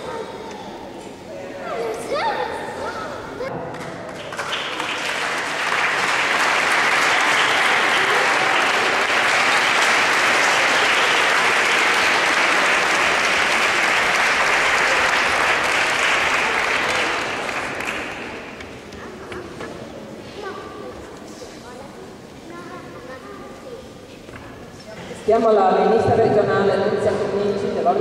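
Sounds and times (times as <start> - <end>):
audience applauding: 3.7 - 18.9.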